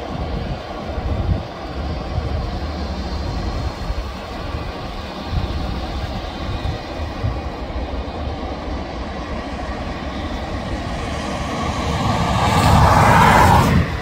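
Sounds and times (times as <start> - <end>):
jet engines rumbling: 0.0 - 14.0.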